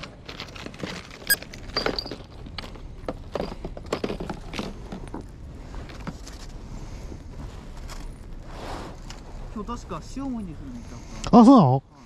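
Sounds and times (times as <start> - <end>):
plastic tackle cases clicking and rustling: 0.0 - 6.6
low steady rumble: 0.0 - 11.2.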